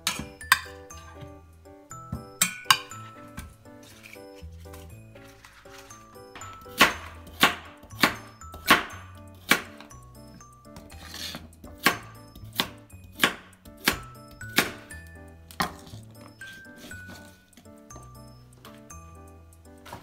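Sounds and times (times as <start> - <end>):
knife chopping on cutting board: 6.7 - 9.9, 11.0 - 14.9.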